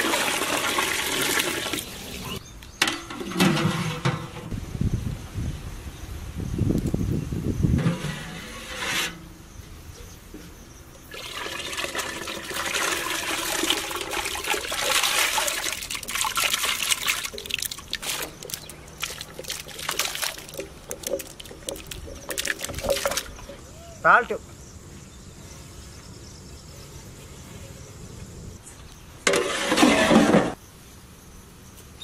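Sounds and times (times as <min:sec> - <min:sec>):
water splashing and trickling: 0:00.0 - 0:02.4, 0:11.0 - 0:23.6.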